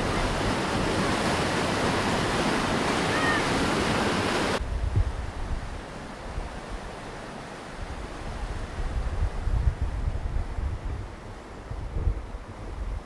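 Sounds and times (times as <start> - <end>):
whitewater rushing over rocks: 0.0 - 4.6
wind buffeting microphone: 3.5 - 6.9, 7.8 - 13.0.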